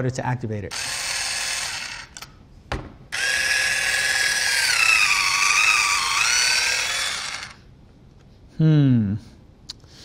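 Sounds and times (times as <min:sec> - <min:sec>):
fish skinner motor whirring: 0:00.7 - 0:02.2, 0:03.2 - 0:07.6.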